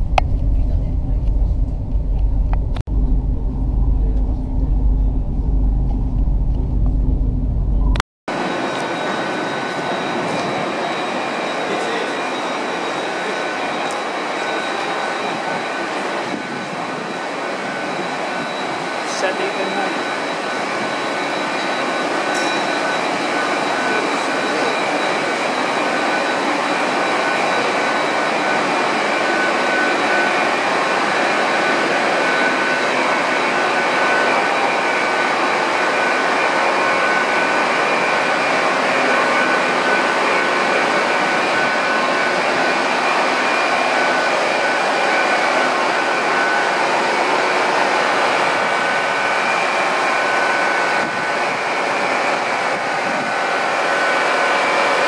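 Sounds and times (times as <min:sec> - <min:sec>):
diesel generator drone: 0:00.0 - 0:55.0
high-pitched whining tones: 0:00.0 - 0:55.0.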